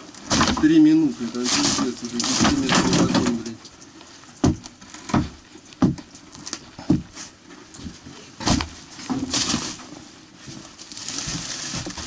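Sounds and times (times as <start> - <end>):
rustle or scrape: 0.6 - 3.7, 7.1 - 12.0
knocks on wooden boards: 4.4 - 6.1, 6.8 - 7.2, 7.8 - 9.3.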